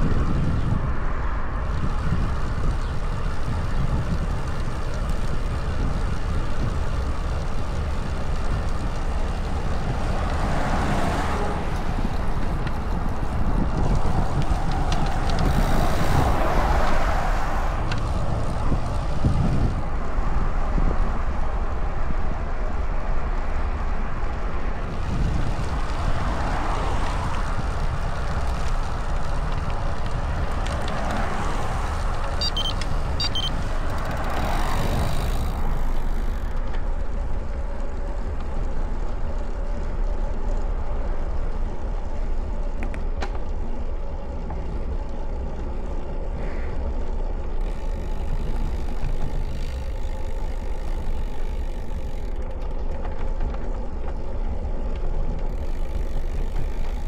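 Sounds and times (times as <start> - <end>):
tyre noise on rough asphalt: 0.0 - 57.0
wind buffeting microphone: 0.0 - 57.0
short high beeps: 32.4 - 33.5.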